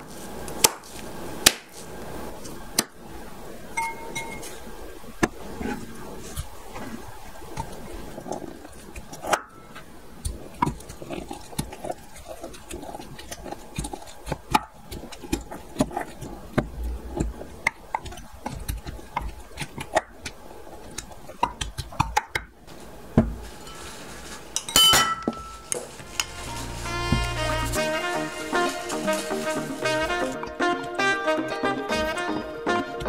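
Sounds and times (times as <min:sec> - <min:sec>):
sharp ringing clinks: 0:03.8 - 0:04.4
fruit squelching: 0:05.3 - 0:24.6, 0:25.2 - 0:31.0.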